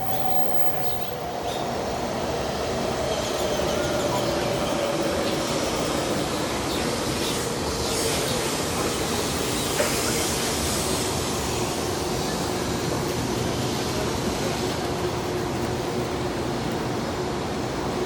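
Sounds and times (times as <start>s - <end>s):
steady rushing hiss: 5.3s - 18.0s.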